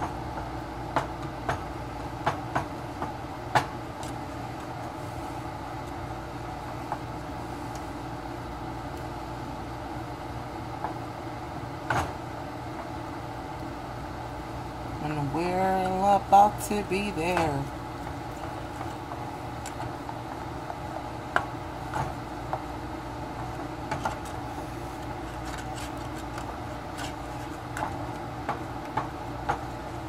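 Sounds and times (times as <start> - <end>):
wooden spoon stirring in pot: 15.3 - 21.1.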